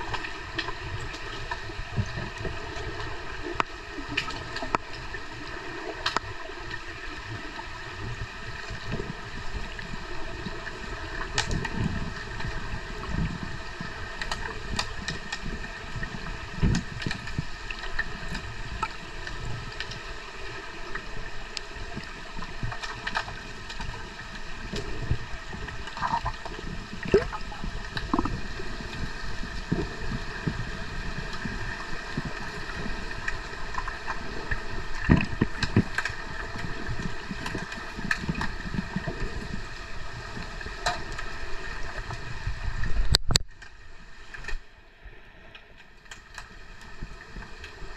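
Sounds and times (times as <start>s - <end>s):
muffled underwater watery rush: 0.0s - 47.9s.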